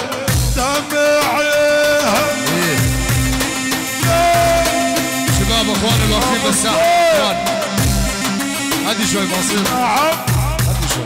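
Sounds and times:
deep drum beats: 0.3s - 11.0s
melody with bending notes: 1.0s - 11.0s.

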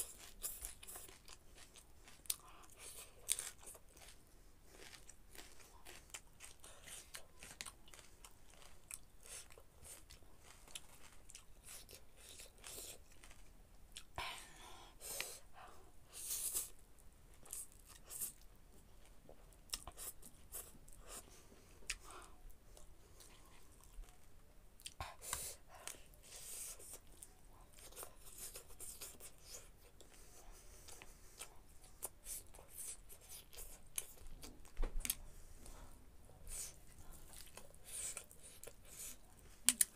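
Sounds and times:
wet chewing mouth clicks: 37.3s - 39.9s.

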